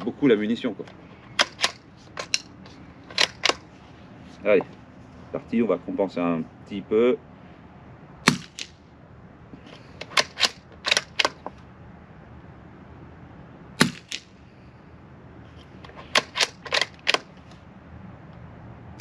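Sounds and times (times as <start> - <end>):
rifle bolt metallic clicks: 0.8 - 3.7, 9.7 - 11.6, 15.9 - 17.3
suppressed rifle shot: 8.3 - 8.8, 13.8 - 14.3.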